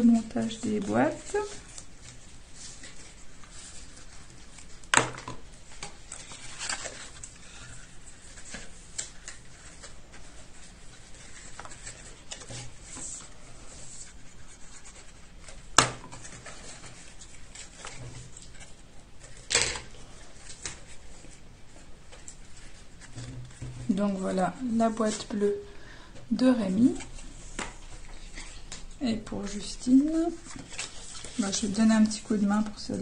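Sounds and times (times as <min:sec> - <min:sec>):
paper rustling and scraping: 0:00.0 - 0:25.6, 0:26.7 - 0:33.0.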